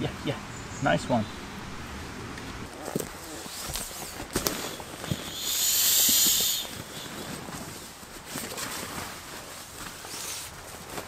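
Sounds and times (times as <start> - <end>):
rushing hiss: 4.4 - 7.9.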